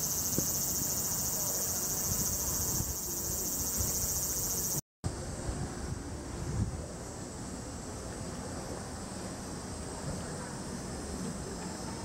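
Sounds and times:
insect chorus: 0.0s - 4.8s
low rumble of wind: 0.0s - 12.0s.

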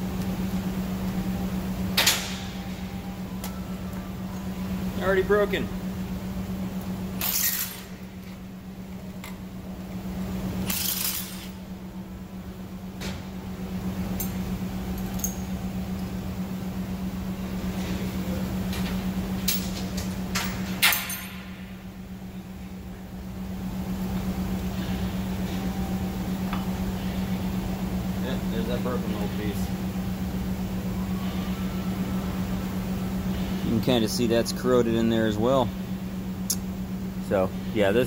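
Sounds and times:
low hum: 0.0s - 38.0s
metal tools clinking and scraping: 7.2s - 7.9s.

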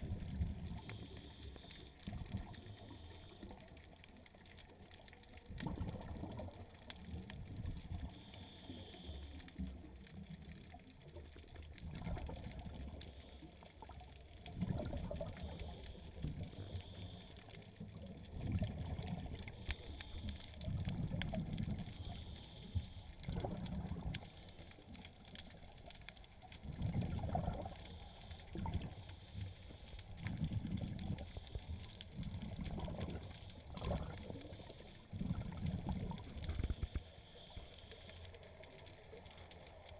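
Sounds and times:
underwater bubbling surges: 0.0s - 39.9s
faint hissing bursts: 0.1s - 3.9s, 8.0s - 9.7s, 15.2s - 17.9s, 18.9s - 39.9s.

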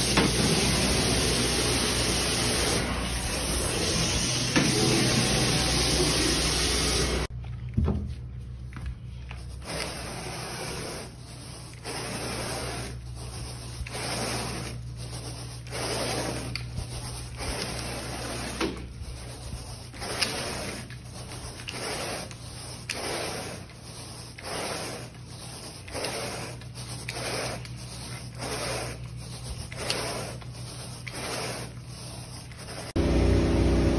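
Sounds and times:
carpet extractor wand hissing: 0.0s - 7.3s, 9.6s - 18.8s, 19.9s - 33.7s
rubbing strokes on carpet: 8.4s - 33.0s.

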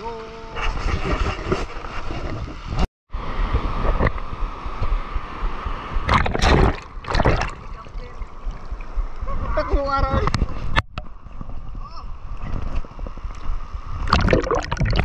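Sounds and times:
wind on microphone: 0.0s - 15.0s
sea water sloshing: 6.0s - 9.2s, 14.0s - 15.0s.

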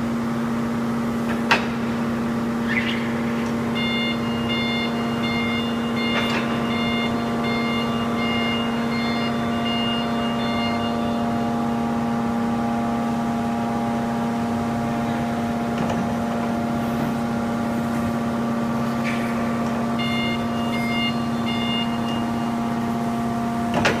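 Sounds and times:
hydraulic power unit humming: 0.0s - 24.0s
high electronic beeper: 2.7s - 12.3s, 19.8s - 22.8s.

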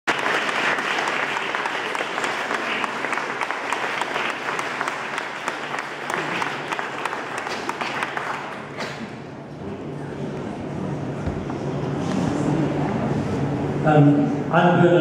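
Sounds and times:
audience applauding: 0.1s - 9.1s.

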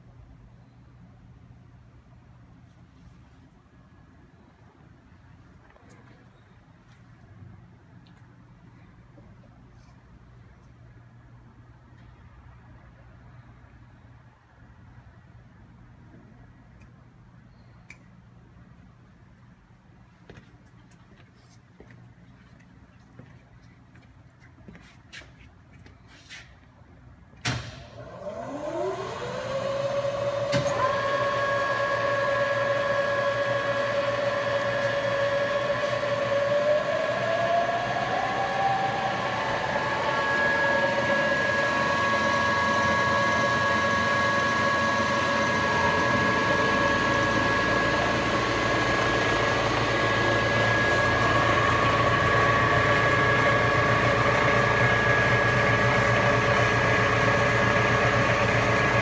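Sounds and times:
milling machine motor whine: 28.0s - 59.0s.

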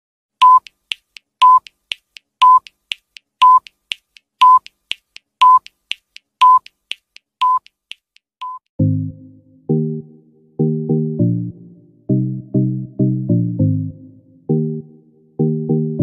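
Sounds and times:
short high beeps: 0.4s - 0.7s.

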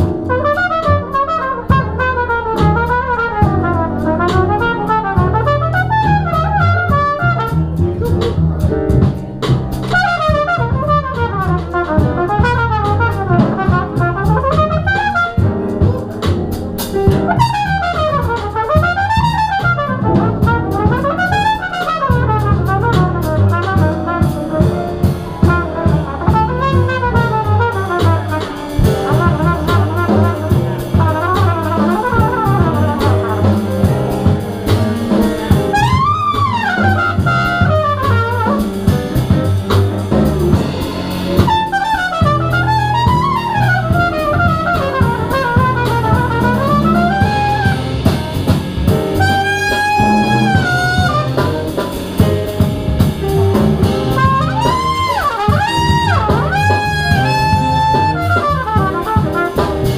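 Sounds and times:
trumpet solo: 0.0s - 9.1s, 9.8s - 59.9s
double bass: 0.0s - 59.9s
drum kit: 0.0s - 59.9s.

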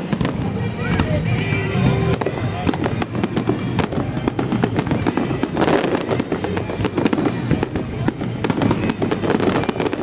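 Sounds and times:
fireworks bangs and crackles: 0.0s - 10.0s.

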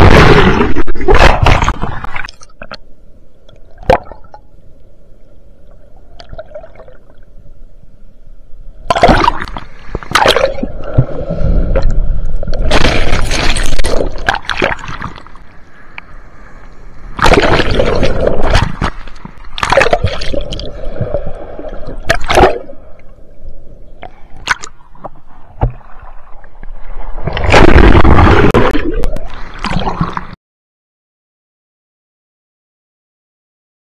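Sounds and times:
waves breaking underwater: 0.0s - 2.7s, 8.8s - 23.2s, 24.0s - 30.4s
rushing bubbling water: 8.9s - 15.4s, 17.2s - 22.8s, 27.1s - 30.4s.

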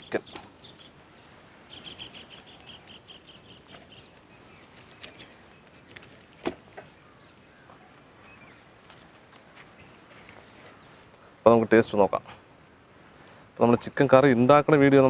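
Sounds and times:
bird chirping: 0.0s - 11.3s.

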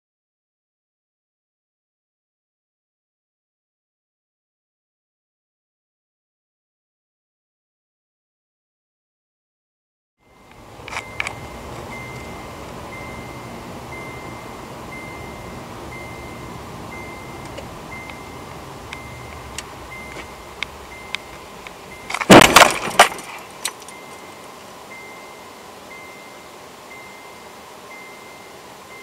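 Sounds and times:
car engine and road noise: 10.2s - 29.0s
car crash impact crunch: 22.1s - 23.9s.

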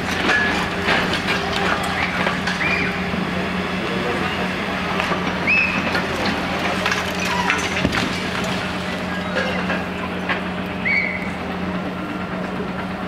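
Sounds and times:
excavator diesel engine running: 0.0s - 13.0s
breaking concrete and falling debris: 5.0s - 10.5s.

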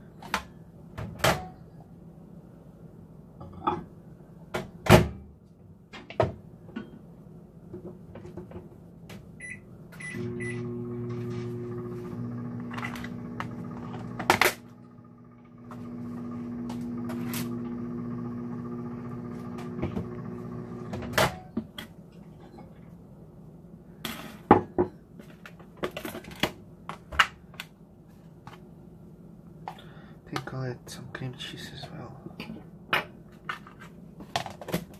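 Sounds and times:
microwave oven humming: 9.4s - 21.7s
microwave loud clunk: 15.6s - 21.6s.

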